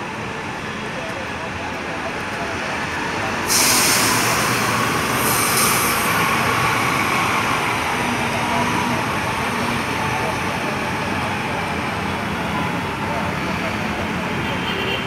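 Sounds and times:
bus pulling away: 0.0s - 14.5s
loud air hiss: 3.3s - 6.7s.

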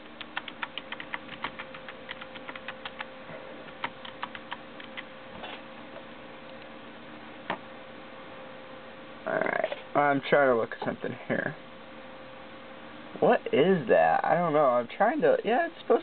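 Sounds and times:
computer keyboard clicks: 0.1s - 3.1s, 3.7s - 5.1s.

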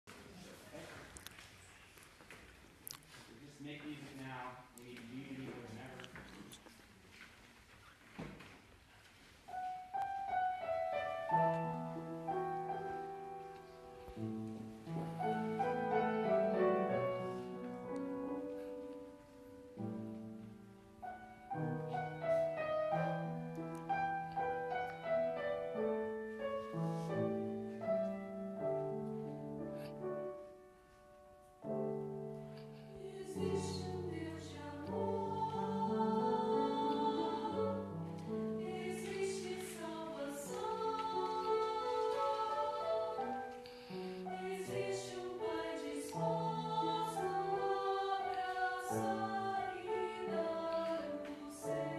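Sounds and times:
piano chords and melody: 9.5s - 51.9s
choir singing: 10.3s - 18.0s, 32.9s - 51.9s.

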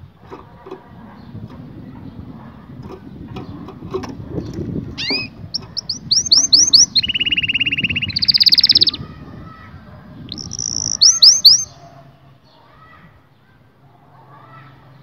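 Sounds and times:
canary singing: 4.4s - 9.0s, 10.2s - 11.9s.

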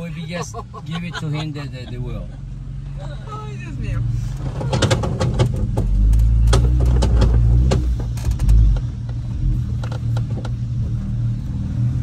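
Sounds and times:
sharp knocks and clunks: 4.4s - 9.2s.

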